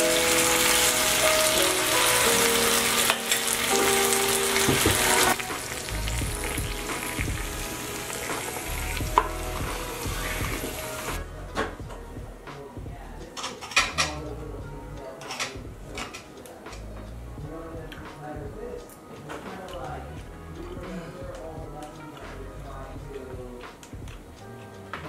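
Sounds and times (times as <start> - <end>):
sauce sizzling on hot plate: 0.0 - 11.2.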